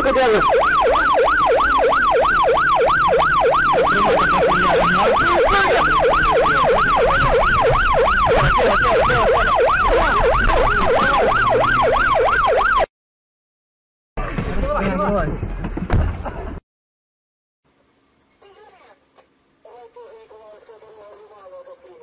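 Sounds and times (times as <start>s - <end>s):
siren yelping: 0.0s - 12.9s.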